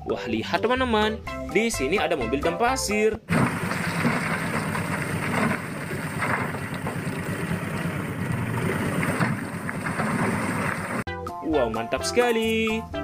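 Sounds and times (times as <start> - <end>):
diesel truck engine running: 3.3 - 11.1
wind buffeting microphone: 3.3 - 11.1.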